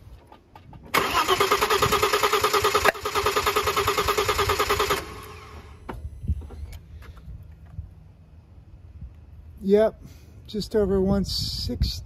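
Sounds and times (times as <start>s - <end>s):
engine cranking on starter: 0.9s - 5.9s.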